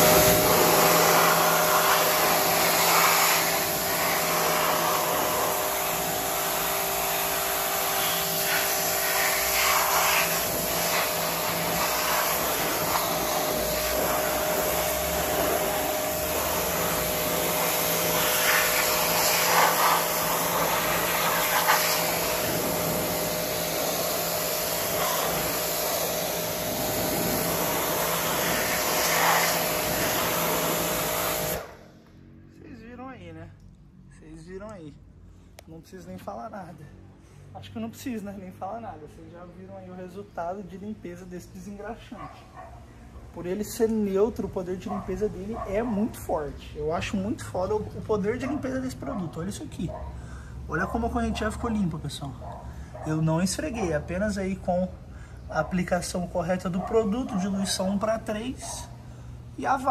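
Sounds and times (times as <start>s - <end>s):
pressure washer spray hissing: 0.0s - 31.9s.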